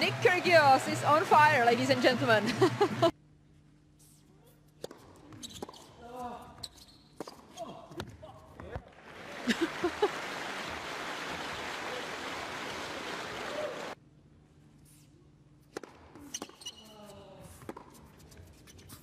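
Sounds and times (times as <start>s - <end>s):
crowd applauding and cheering: 0.0s - 3.1s, 8.9s - 14.0s
shouts: 13.3s - 14.0s.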